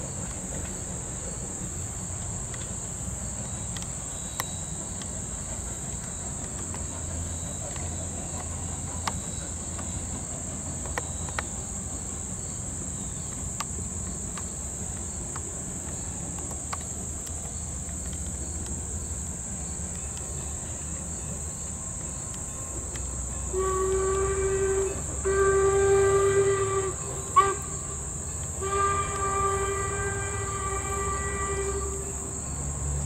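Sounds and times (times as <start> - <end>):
insects chirring: 0.0 - 33.0
steam locomotive whistle: 23.2 - 33.0.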